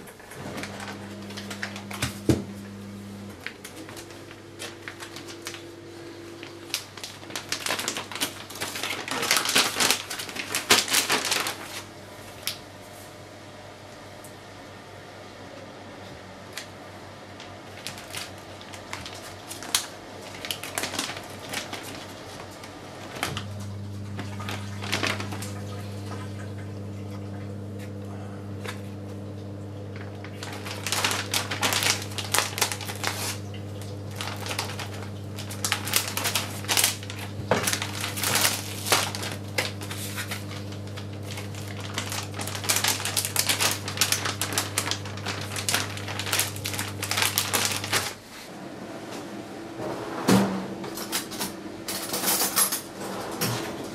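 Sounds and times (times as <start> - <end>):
steady low hum: 0.0 - 7.3, 22.5 - 52.3
plastic bag crinkling: 0.2 - 12.6, 16.6 - 26.0, 29.9 - 48.4.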